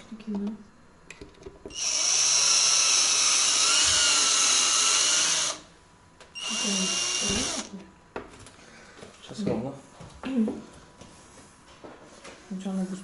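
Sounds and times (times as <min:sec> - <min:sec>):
cordless drill whining: 0:01.7 - 0:05.6, 0:06.4 - 0:07.7.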